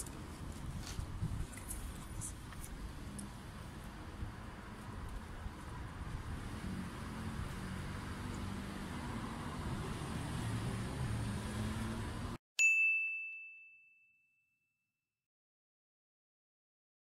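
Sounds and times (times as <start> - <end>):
vehicle rumble approaching: 0.0 - 12.4.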